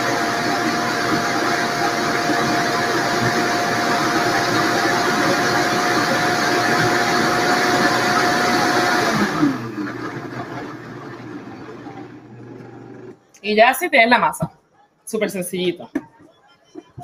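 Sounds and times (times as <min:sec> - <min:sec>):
blender motor winding down: 0:00.0 - 0:13.2
blender running: 0:00.0 - 0:13.2.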